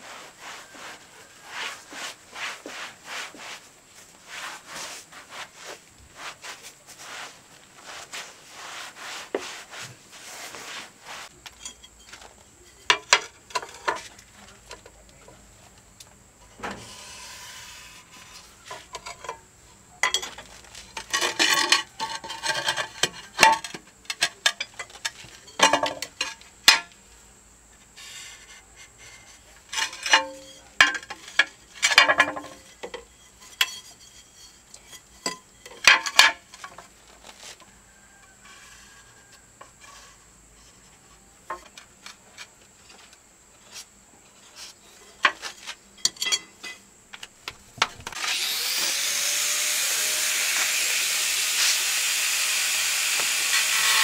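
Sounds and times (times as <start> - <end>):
trowel scraping tiles: 16.6 - 19.4, 20.1 - 26.4, 28.0 - 37.6.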